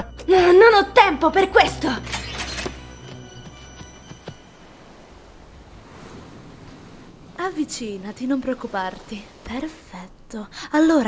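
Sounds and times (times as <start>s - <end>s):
soft tones: 0.0s - 5.7s
footsteps on wooden step: 2.7s - 4.4s.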